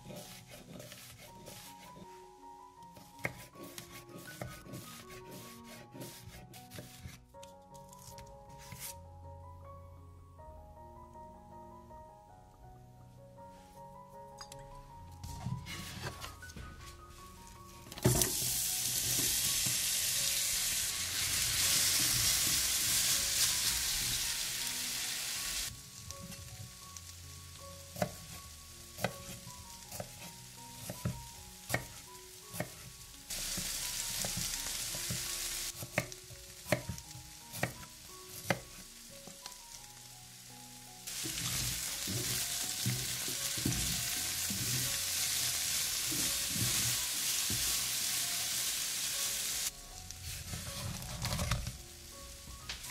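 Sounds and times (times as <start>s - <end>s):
faint background music: 0.0s - 52.9s
knife chopping on wooden board: 3.2s - 7.2s
onions sizzling in hot oil: 18.0s - 52.9s.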